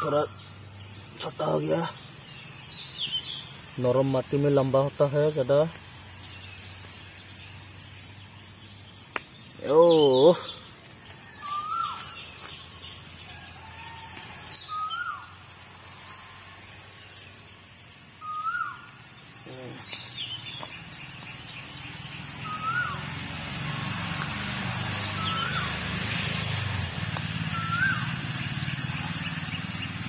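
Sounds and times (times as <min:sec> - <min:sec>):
bird chirps: 0:00.0 - 0:16.4, 0:18.2 - 0:30.0
insects droning: 0:00.0 - 0:30.0
bird whistling: 0:11.4 - 0:12.2, 0:14.6 - 0:15.3, 0:18.2 - 0:18.9, 0:22.4 - 0:23.0, 0:24.8 - 0:25.7, 0:27.5 - 0:28.2.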